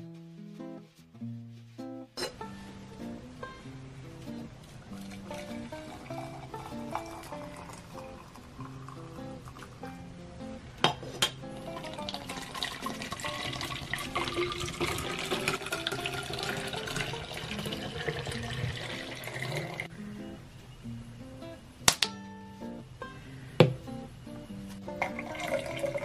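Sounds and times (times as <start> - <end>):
soft background music: 0.0 - 26.0
milk pouring into plastic bottle: 11.7 - 19.8, 25.1 - 26.0.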